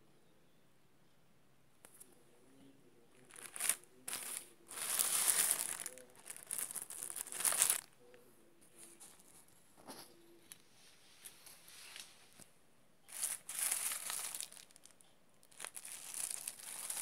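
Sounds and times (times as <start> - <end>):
plastic bag crinkling: 3.2 - 7.9, 13.1 - 17.0.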